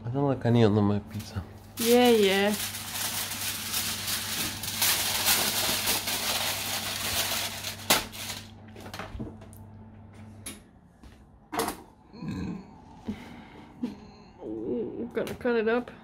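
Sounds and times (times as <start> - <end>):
aluminium foil crumpling: 1.2 - 9.0.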